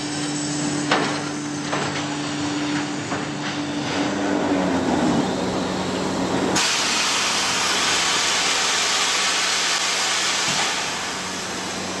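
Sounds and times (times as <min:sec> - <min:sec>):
conveyor machine hum: 0:00.0 - 0:12.0
loud steady hiss: 0:06.5 - 0:12.0.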